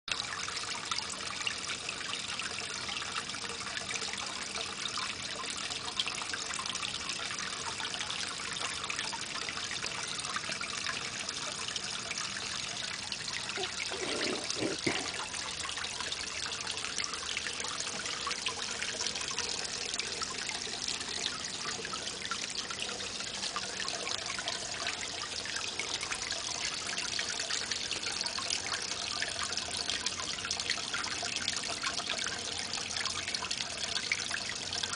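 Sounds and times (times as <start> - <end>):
fountain water bubbling and splashing: 0.1 - 34.9.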